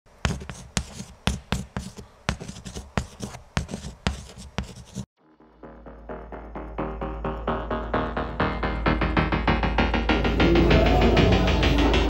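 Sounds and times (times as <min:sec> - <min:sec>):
pen scratching and tapping: 0:00.2 - 0:05.1.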